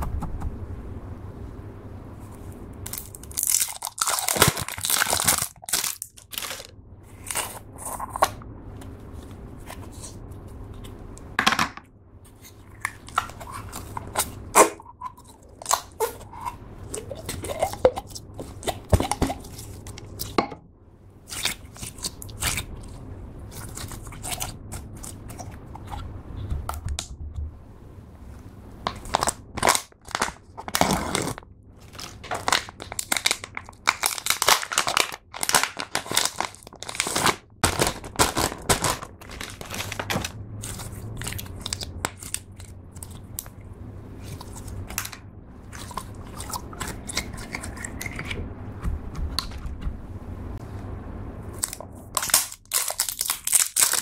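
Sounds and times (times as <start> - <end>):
slime crackling and popping: 2.9 - 6.7, 51.6 - 54.0.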